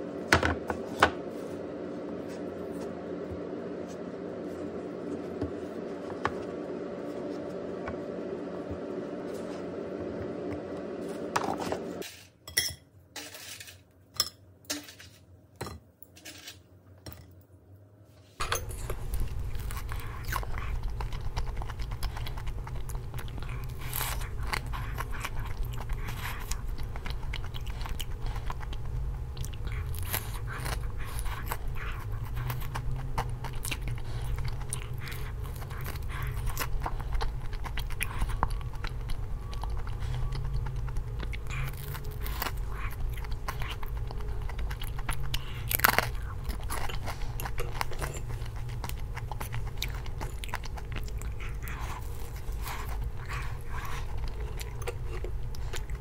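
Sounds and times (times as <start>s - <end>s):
low steady hum: 0.0s - 56.0s
crunchy chewing: 18.4s - 56.0s.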